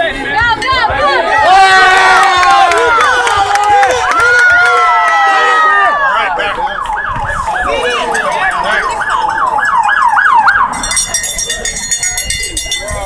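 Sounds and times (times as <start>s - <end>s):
police siren yelping: 3.8s - 11.1s.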